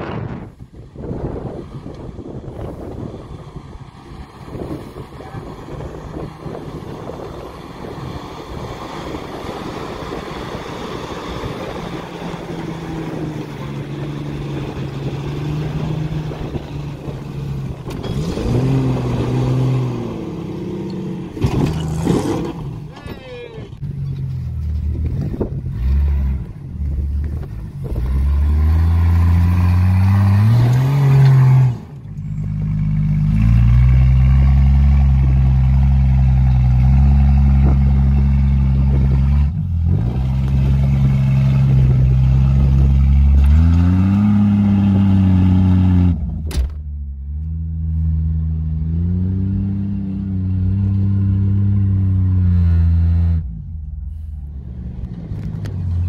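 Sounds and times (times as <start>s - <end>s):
car engine revving under load: 0.2s - 23.0s, 23.8s - 56.0s.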